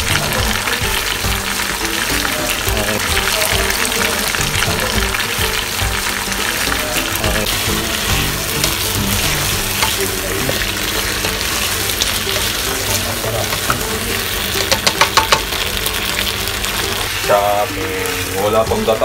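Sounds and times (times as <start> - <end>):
food sizzling in a wok: 0.0 - 19.0
spatula knocking against wok: 7.6 - 10.2, 13.5 - 13.8, 14.6 - 15.6.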